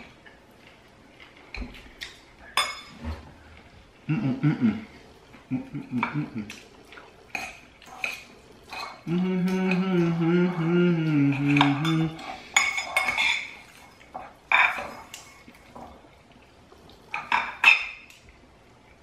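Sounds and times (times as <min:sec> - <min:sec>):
cutlery scraping ceramic bowls: 0:02.5 - 0:03.2, 0:07.3 - 0:09.8, 0:11.3 - 0:15.8
person humming: 0:04.0 - 0:06.6, 0:09.0 - 0:12.3.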